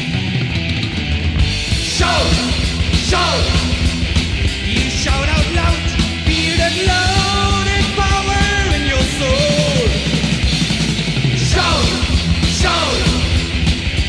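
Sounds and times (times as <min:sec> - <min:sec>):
heavy metal band playing: 0:00.0 - 0:14.0.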